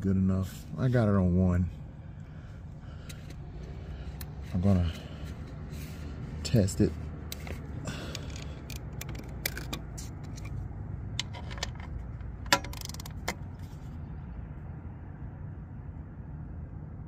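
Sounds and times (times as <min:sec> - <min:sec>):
hand ratchet clicks: 0:07.3 - 0:10.4.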